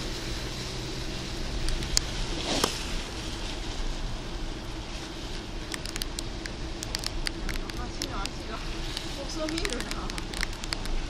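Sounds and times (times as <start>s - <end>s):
engine and tyre hum: 0.0s - 11.0s
sharp ticks: 5.7s - 11.0s.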